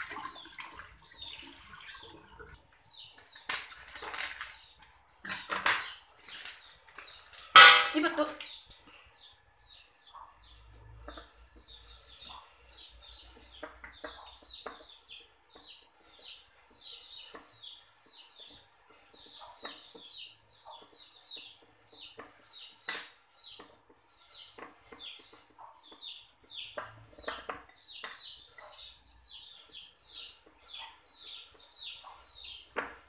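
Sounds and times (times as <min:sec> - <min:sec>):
bird chirping: 0:05.9 - 0:33.0.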